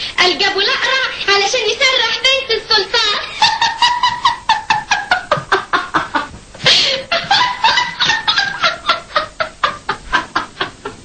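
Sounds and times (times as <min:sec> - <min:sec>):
woman laughing heartily: 0:03.2 - 0:11.0
loud gasping breath: 0:06.6 - 0:07.1.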